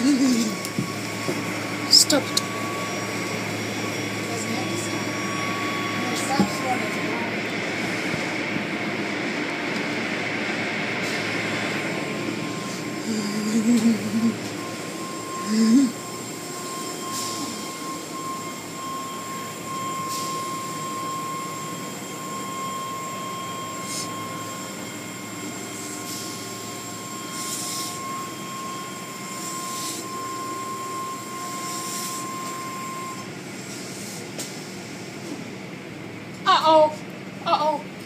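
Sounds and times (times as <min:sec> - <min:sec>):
high whine: 0:00.0 - 0:33.3
car wash machinery hum: 0:00.0 - 0:38.0.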